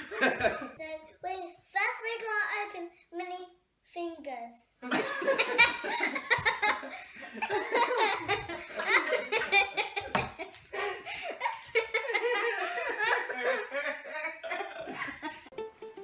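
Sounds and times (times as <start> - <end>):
girls giggling and laughing: 0.0 - 0.8, 4.8 - 15.5.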